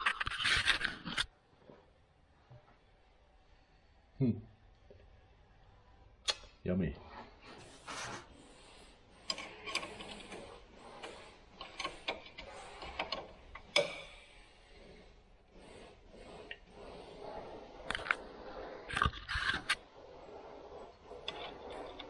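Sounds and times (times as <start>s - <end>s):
tools clicking and scraping metal: 9.2s - 14.3s.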